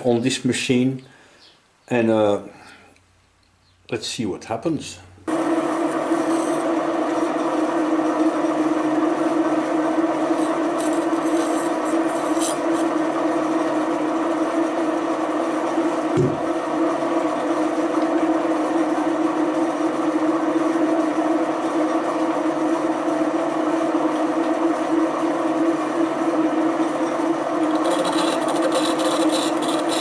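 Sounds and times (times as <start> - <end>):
milling machine spindle humming: 5.3 - 30.0.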